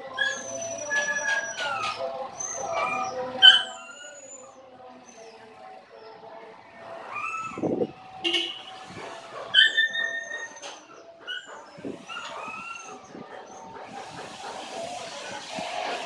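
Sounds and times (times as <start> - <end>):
dog barking and yelping: 0.0 - 4.5, 8.9 - 14.7.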